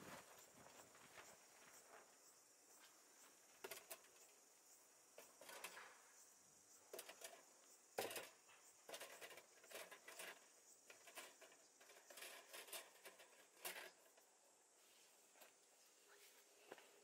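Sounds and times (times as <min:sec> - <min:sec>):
metal grill scraping and clicking: 0:05.2 - 0:06.0, 0:06.9 - 0:14.2.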